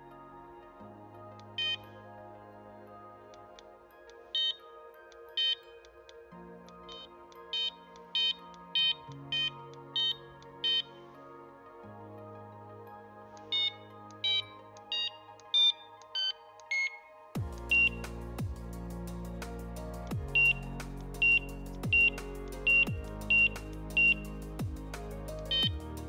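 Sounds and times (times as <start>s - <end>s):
background music: 0.0s - 26.0s
bite alarm beeping: 1.6s - 1.8s, 4.4s - 4.6s, 5.4s - 5.7s, 6.9s - 10.9s, 13.5s - 17.1s, 17.7s - 18.0s, 20.3s - 20.6s, 21.2s - 22.1s, 22.7s - 24.3s, 25.5s - 25.8s.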